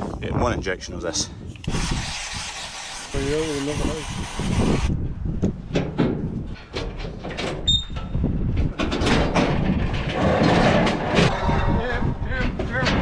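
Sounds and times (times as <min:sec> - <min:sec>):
steel cattle crush rattling: 0:05.7 - 0:13.0.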